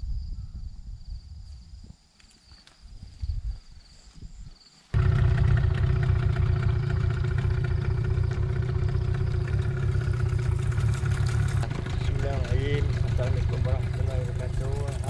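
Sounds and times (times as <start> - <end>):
engine running: 5.0 - 15.0.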